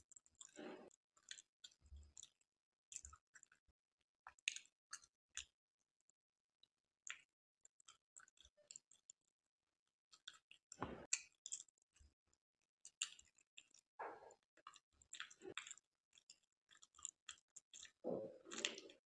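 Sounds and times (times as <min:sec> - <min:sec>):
wet chewing mouth clicks: 0:00.3 - 0:03.6, 0:04.3 - 0:05.5, 0:10.1 - 0:11.7, 0:12.8 - 0:19.0.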